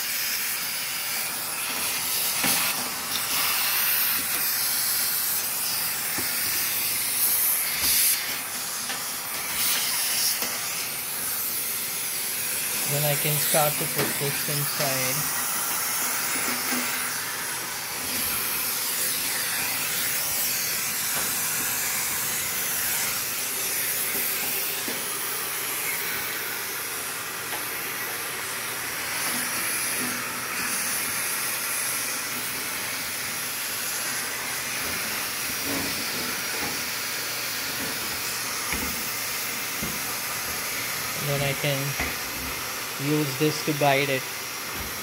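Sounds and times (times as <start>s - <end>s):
vacuum cleaner suction hiss: 0.0s - 45.0s.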